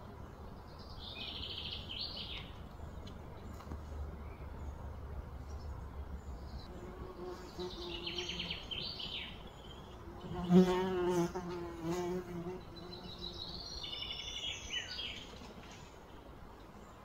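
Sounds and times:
birds chirping: 0:00.0 - 0:17.0
flying insect buzzing: 0:10.0 - 0:13.4.

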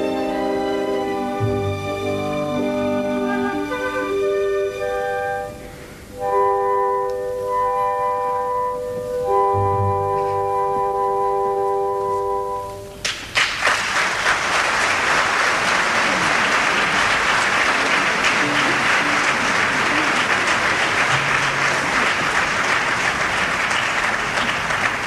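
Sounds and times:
music held chord: 0:00.0 - 0:13.0
audience applause: 0:13.0 - 0:25.0.

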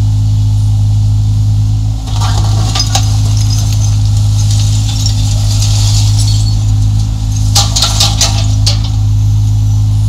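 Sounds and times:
excavator diesel engine running: 0:00.3 - 0:10.0
concrete rubble clinking and rattling: 0:02.0 - 0:09.3.

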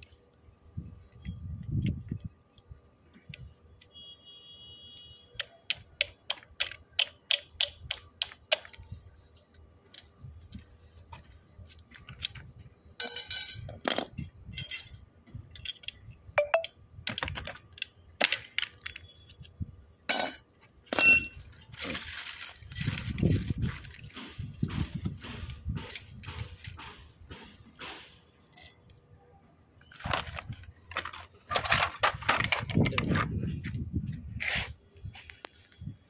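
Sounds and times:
rustling scrape: 0:34.3 - 0:35.8.

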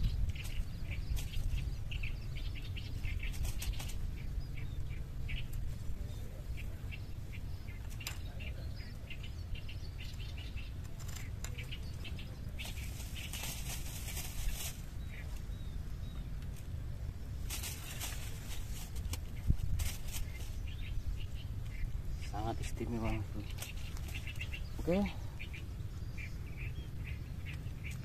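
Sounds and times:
low steady rumble: 0:00.0 - 0:28.0
small birds chirping: 0:00.0 - 0:28.0.

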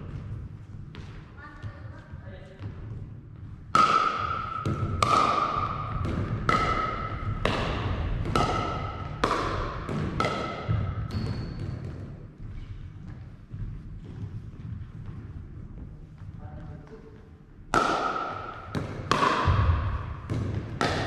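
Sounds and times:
paddles hitting plastic ball: 0:03.7 - 0:12.3, 0:17.7 - 0:21.0.

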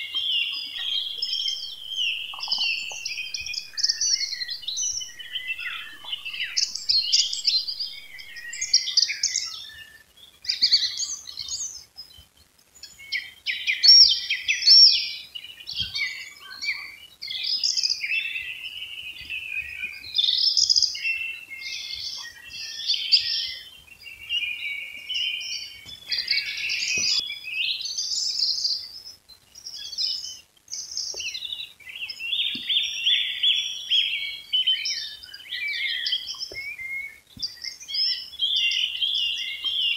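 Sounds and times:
songbirds singing: 0:00.0 - 0:39.9
bird fast trill: 0:00.7 - 0:09.5.

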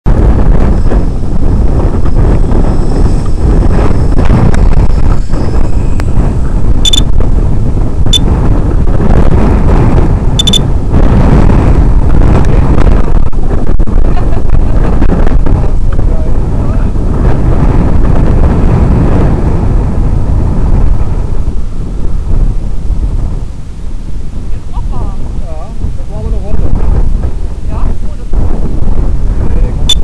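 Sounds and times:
wind buffeting microphone: 0:00.0 - 0:30.0
short high beeps: 0:06.8 - 0:07.1, 0:10.4 - 0:10.6.

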